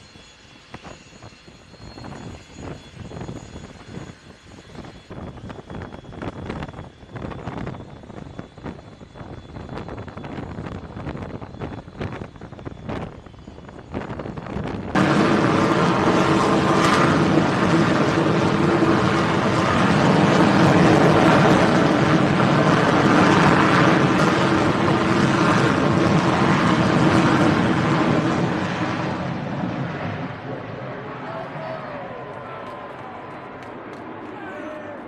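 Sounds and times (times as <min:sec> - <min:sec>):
jet engine roar: 0:00.0 - 0:35.0.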